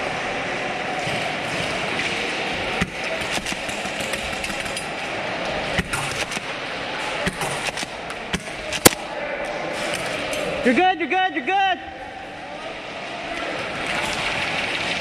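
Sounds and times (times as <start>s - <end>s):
airsoft gunfire cracks: 7.3s - 9.1s.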